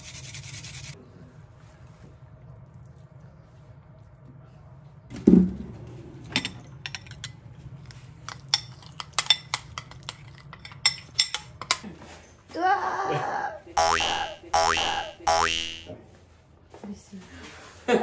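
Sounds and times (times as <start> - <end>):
metal spoon clinking in ceramic bowl: 8.4 - 11.8.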